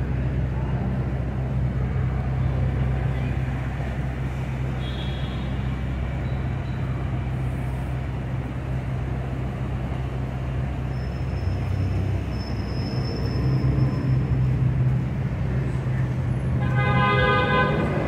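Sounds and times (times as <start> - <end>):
idling and passing cars: 0.0 - 18.0.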